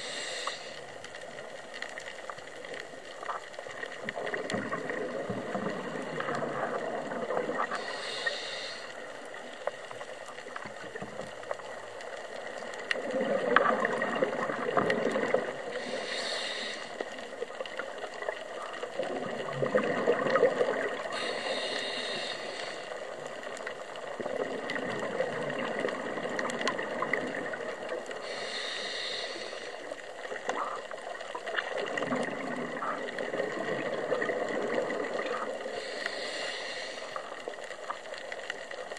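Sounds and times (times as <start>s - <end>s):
regulator inhalation hisses: 0.0s - 1.0s, 7.7s - 9.6s, 15.6s - 17.2s, 21.0s - 23.2s, 28.2s - 30.0s, 35.7s - 37.4s
gurgling exhaled bubbles: 3.9s - 8.6s, 12.3s - 38.7s.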